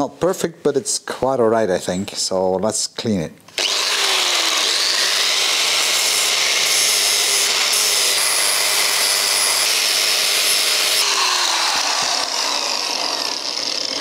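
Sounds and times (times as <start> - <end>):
angle grinder grinding metal: 3.6 - 14.0.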